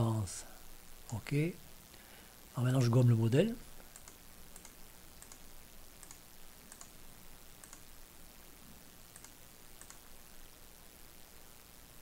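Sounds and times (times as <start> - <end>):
steady low hiss: 0.0 - 12.0
computer mouse clicks: 3.9 - 7.0, 7.6 - 7.9, 9.1 - 10.1.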